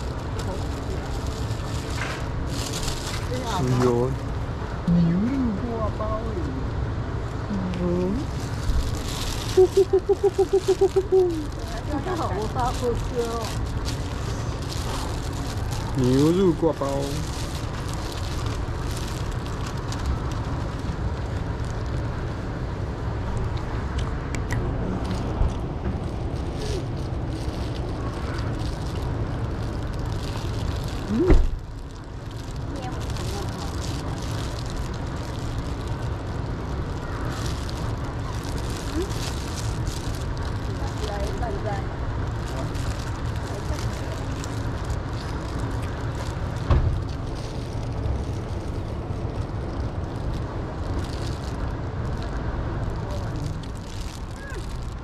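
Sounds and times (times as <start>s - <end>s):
low outdoor rumble: 0.0s - 55.0s
short thump: 31.3s - 31.6s.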